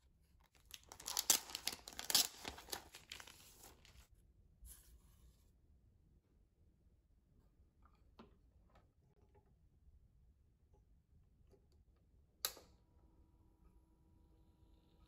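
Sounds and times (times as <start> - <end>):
plastic sleeve crinkling: 0.5 - 4.0
paper rustle: 0.6 - 4.1.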